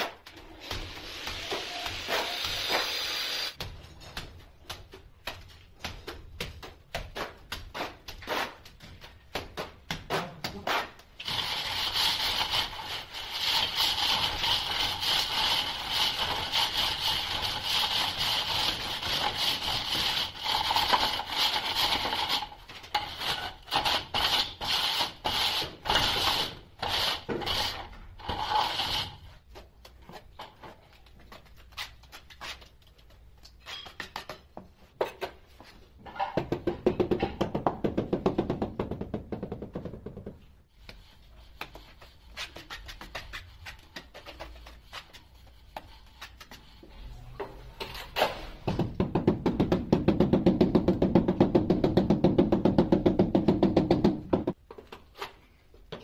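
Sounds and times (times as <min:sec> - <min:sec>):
trowel spreading mortar: 0:00.0 - 0:03.6, 0:07.2 - 0:29.5, 0:40.7 - 0:46.9
straightedge scraping cement render: 0:07.2 - 0:08.8, 0:09.4 - 0:29.4, 0:40.8 - 0:46.9.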